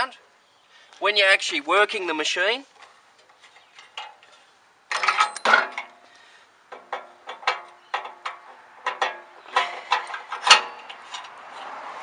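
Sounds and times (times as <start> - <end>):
metal clanking and clicking: 3.8 - 6.0, 6.7 - 11.4
sharp metal knocks: 6.7 - 11.0.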